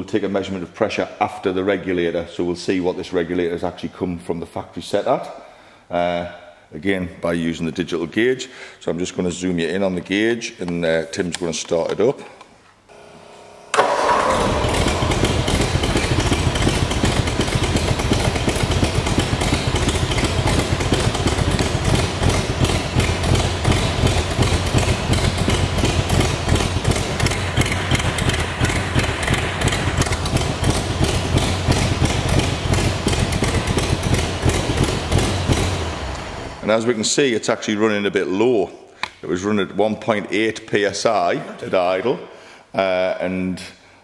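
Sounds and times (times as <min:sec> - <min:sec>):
car engine idling: 0:13.8 - 0:36.6.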